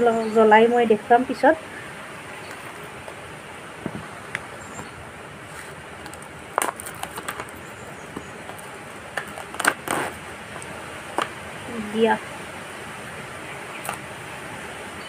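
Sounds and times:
plastic wrapper crinkling: 6.0 - 7.6, 8.5 - 10.2.

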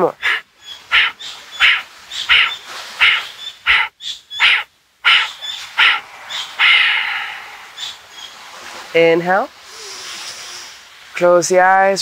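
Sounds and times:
forceful nasal exhalations: 9.6 - 10.8.

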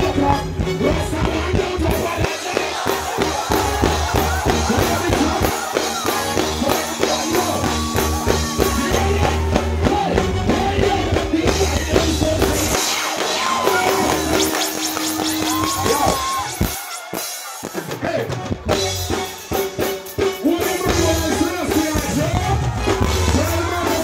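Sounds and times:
person singing: 0.0 - 14.6, 20.3 - 24.0
heavy bass line: 0.0 - 16.7, 20.5 - 24.0
drums: 0.0 - 24.0
live band music: 0.0 - 24.0.

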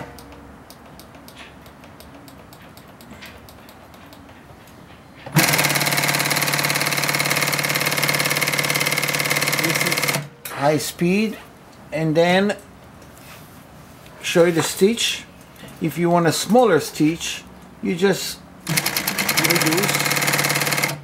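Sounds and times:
industrial sewing machine stitching: 5.4 - 10.3, 18.7 - 21.0.

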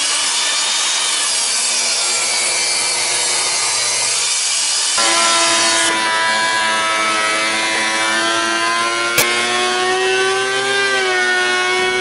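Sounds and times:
thickness planer whining: 0.0 - 12.0.

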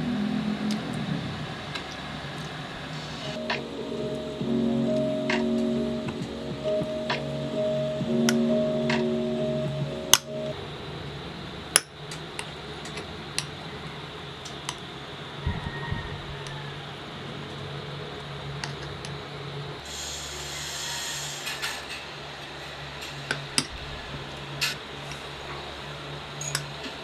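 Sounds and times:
low steady hum: 0.0 - 19.9.

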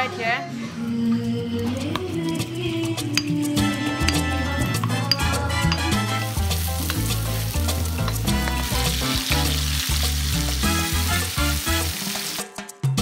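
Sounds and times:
background music with bass line: 1.3 - 13.0
tomatoes sizzling in oil: 5.8 - 12.6.

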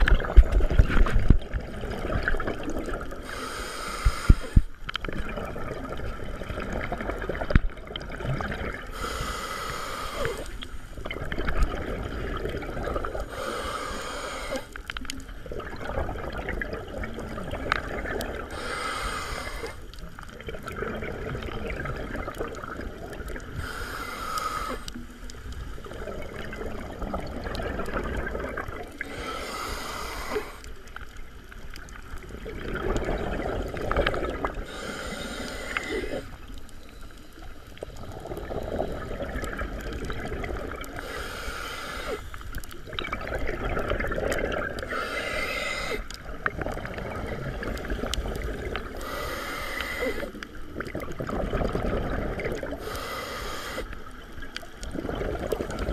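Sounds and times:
exhaled bubbles underwater: 0.0 - 55.9
regulator air hiss: 3.2 - 4.7, 9.0 - 10.6, 13.3 - 14.8, 18.5 - 19.9, 23.6 - 25.0, 29.0 - 30.7, 34.6 - 36.4, 41.0 - 42.4, 44.9 - 46.1, 49.0 - 50.4, 52.8 - 54.1.

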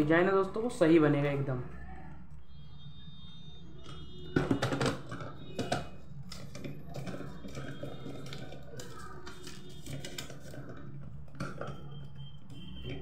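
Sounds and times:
plastic toy clicking and rustling: 3.8 - 13.0.

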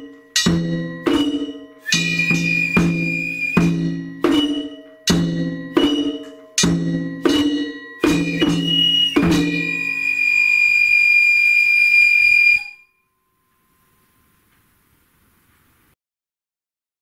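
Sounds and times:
drum strokes ringing: 0.0 - 10.9
high held note: 0.0 - 14.6.

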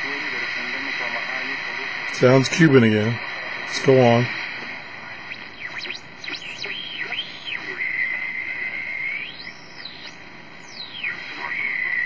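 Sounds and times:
radio band hiss: 0.0 - 12.0
radio whistles sweeping: 3.2 - 12.0.

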